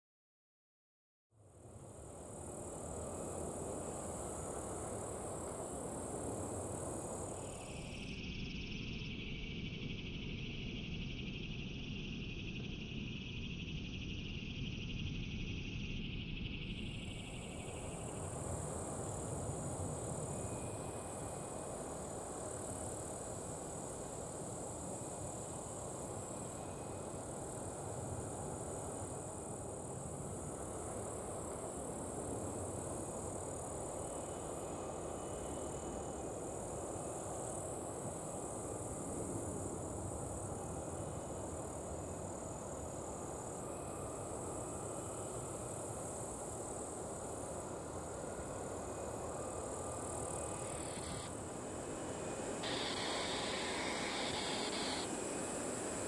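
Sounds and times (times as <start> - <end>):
insect chorus: 1.4 - 56.0.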